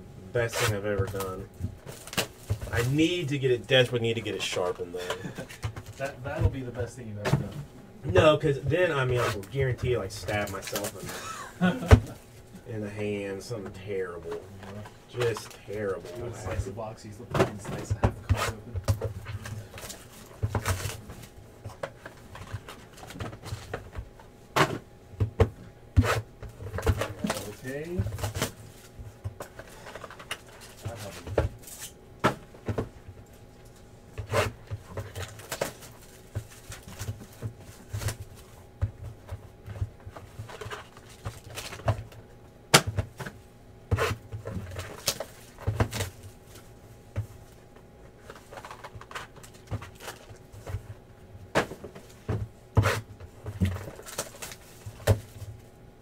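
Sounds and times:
faint steady hum: 0.0s - 56.0s
cardboard boxes knocking and rustling: 17.4s - 28.6s, 34.2s - 46.6s, 48.2s - 55.6s.

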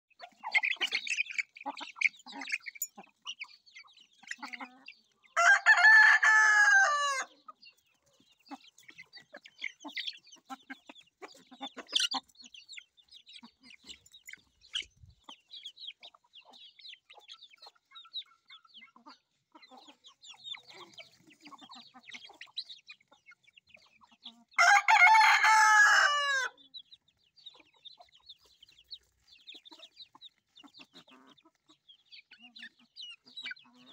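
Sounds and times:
chicks peeping: 0.1s - 33.9s
hens clucking: 0.1s - 33.9s
rooster crowing: 5.4s - 7.3s, 24.6s - 26.6s.

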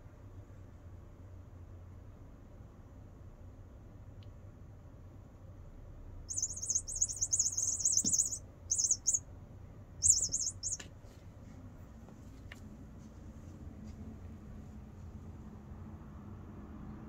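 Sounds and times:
bird warbling chirps: 6.3s - 9.2s, 10.0s - 10.8s.

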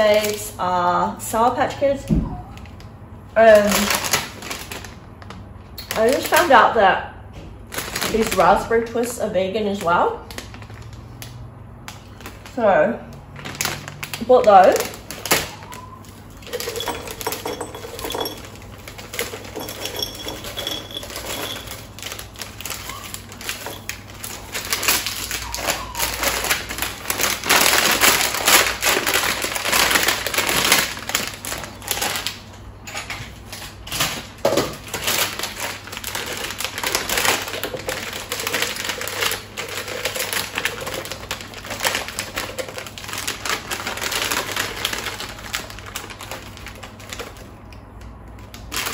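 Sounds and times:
plastic packets crinkling: 2.6s - 6.5s, 7.6s - 48.9s
sweets tipped into glass jars: 13.4s - 32.3s.

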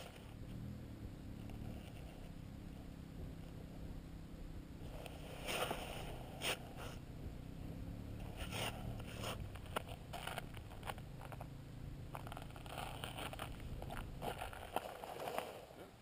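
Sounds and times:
low rumble: 0.1s - 14.8s
small ticks: 9.0s - 11.5s.

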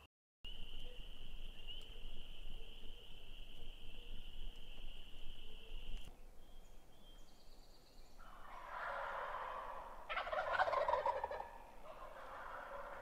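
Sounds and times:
turkey gobbling: 8.2s - 13.0s.

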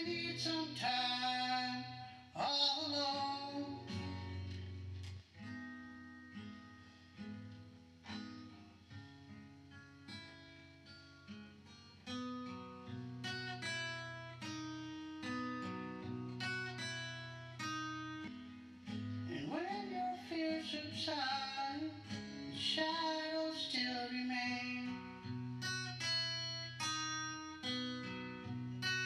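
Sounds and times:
person singing: 0.0s - 4.3s, 19.2s - 25.3s
acoustic guitar strumming chords: 0.0s - 29.0s.

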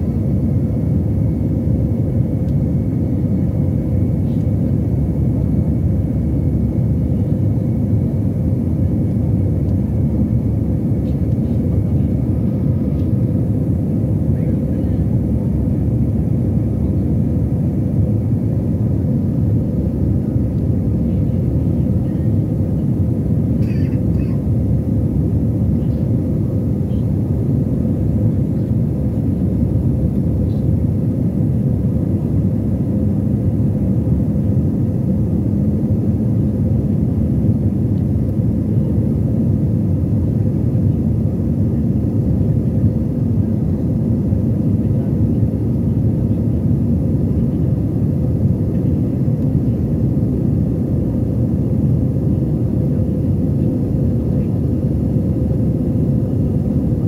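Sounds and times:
airliner cabin rumble: 0.0s - 57.0s.

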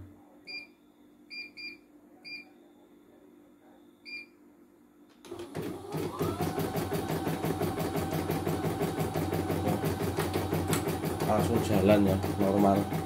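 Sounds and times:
embroidery machine running: 5.3s - 13.0s.

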